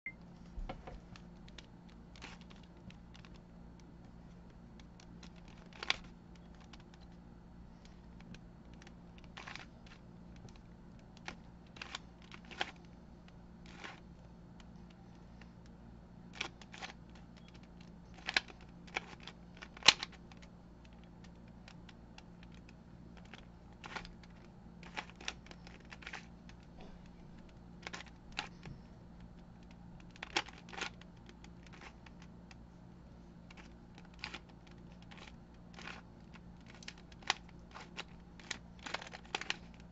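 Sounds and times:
puzzle cube layers clicking: 33.4s - 39.9s.

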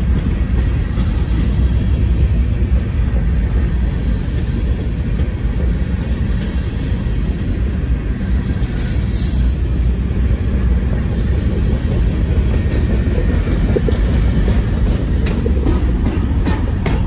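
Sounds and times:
train wheels rumbling on rail: 0.0s - 17.0s
wheels clicking over rail joints: 0.0s - 17.0s.

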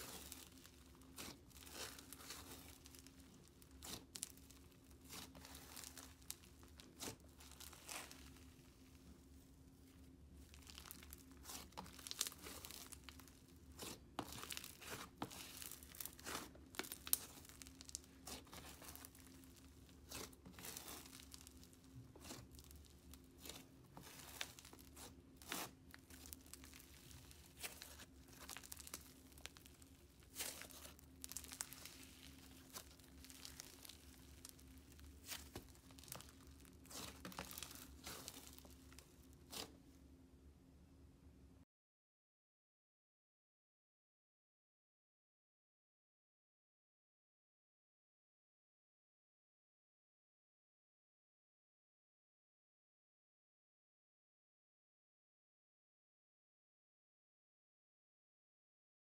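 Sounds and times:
slime crackling and tearing: 0.0s - 9.1s, 9.8s - 39.8s.

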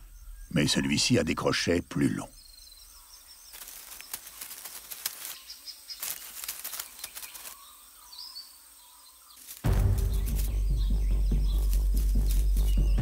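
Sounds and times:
faint bird chirps: 0.0s - 13.0s
rustling of dry leaf litter: 3.0s - 8.5s, 9.2s - 13.0s
loud low music: 9.7s - 13.0s.

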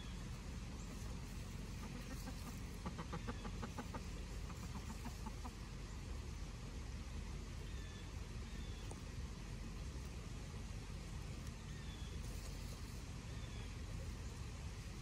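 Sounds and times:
chickens clucking: 0.0s - 6.2s
low background rumble: 0.0s - 15.0s.

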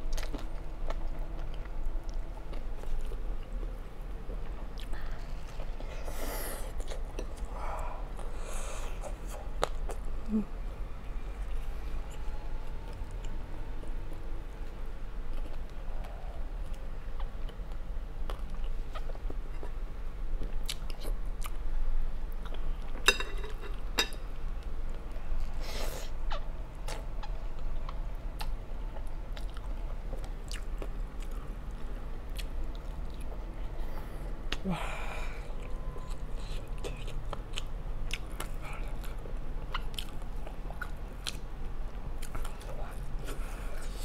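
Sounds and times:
close-miked chewing noodles: 24.9s - 44.0s.

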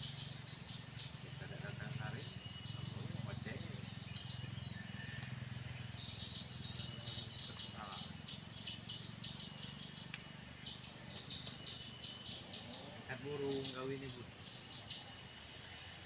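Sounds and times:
high insect buzz: 0.0s - 16.0s.

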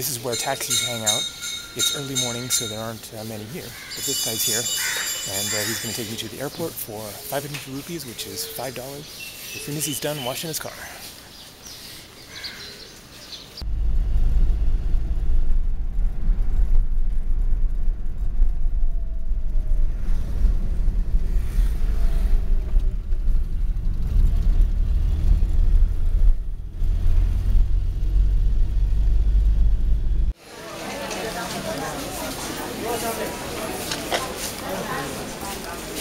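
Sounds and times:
wind rumble on microphone: 13.6s - 30.3s
road and engine noise: 13.6s - 36.0s.

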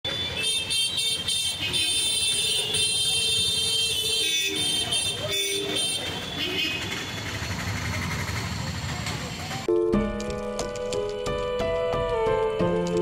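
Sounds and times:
street noise: 0.0s - 13.0s
vehicle horns honking: 0.1s - 7.4s.

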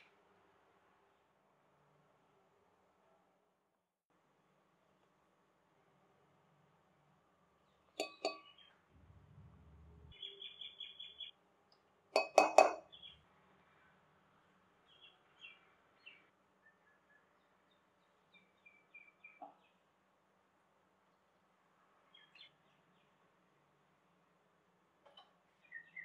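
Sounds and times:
spoons clinking glass bowl: 8.0s - 8.5s, 12.2s - 12.8s.

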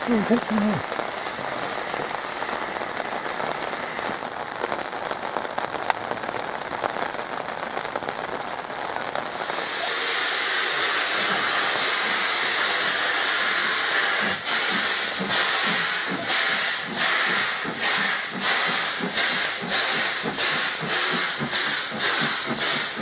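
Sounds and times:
rain hiss: 0.0s - 23.0s
steam locomotive hissing steam: 9.3s - 23.0s.

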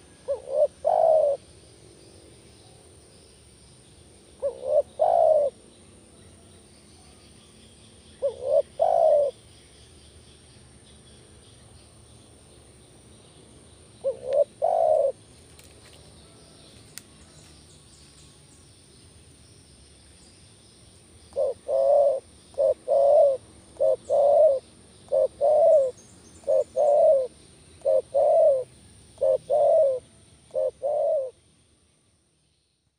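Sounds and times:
dove cooing: 0.0s - 1.4s, 4.4s - 5.6s, 8.2s - 9.4s, 14.0s - 15.2s, 21.3s - 31.4s.

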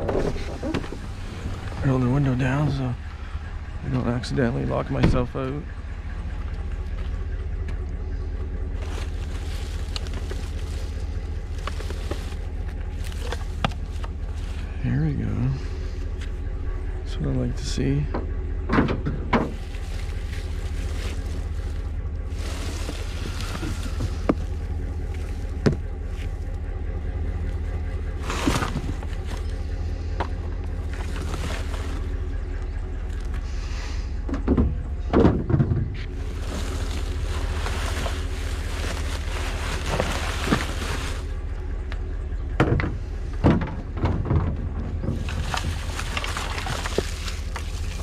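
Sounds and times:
knocks and clunks: 0.0s - 7.9s, 18.0s - 26.6s, 34.2s - 36.7s, 41.8s - 48.0s
vehicle engine idling: 0.0s - 48.0s.

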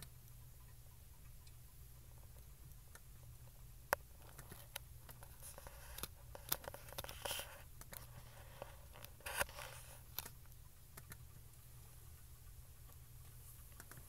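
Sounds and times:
faint ticks: 0.0s - 9.2s
low steady hum: 0.0s - 14.0s.

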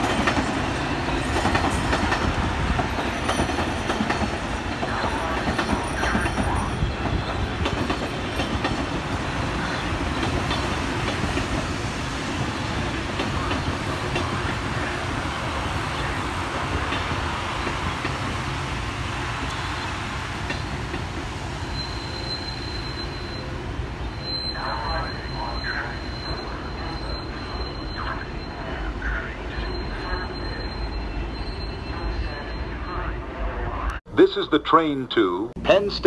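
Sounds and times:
train wheels rumbling on rail: 0.0s - 33.1s
high squeal: 21.6s - 33.3s.

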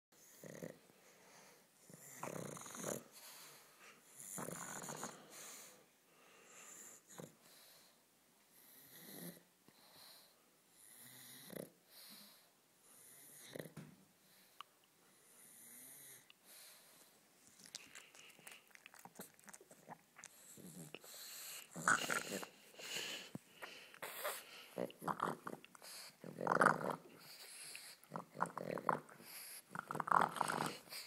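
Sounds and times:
dog snorting and wheezing: 1.8s - 5.7s, 20.2s - 31.0s.

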